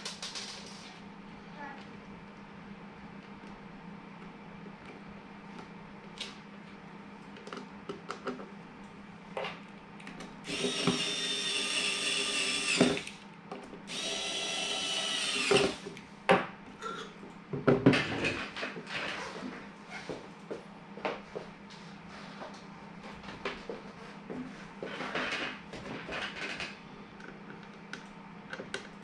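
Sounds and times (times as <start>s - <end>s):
electric screwdriver whining: 10.5s - 13.2s, 13.9s - 15.8s.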